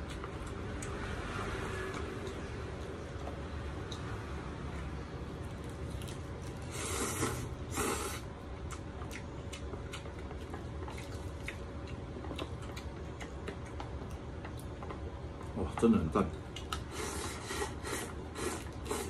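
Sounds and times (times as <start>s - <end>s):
chewing with wet mouth clicks: 0.0s - 1.1s, 1.8s - 4.2s, 8.4s - 17.2s
person slurping noodles: 6.7s - 8.3s, 16.9s - 19.0s.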